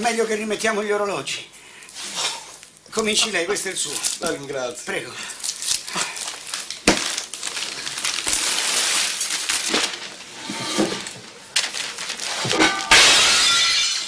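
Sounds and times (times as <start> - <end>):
paper rustling and crinkling: 5.3 - 12.9.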